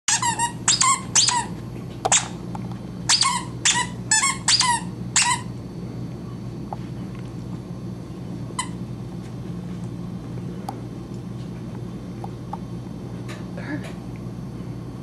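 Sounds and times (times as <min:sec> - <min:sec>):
dog toy squeaking: 0:00.1 - 0:01.5, 0:02.1 - 0:02.4, 0:03.1 - 0:05.5.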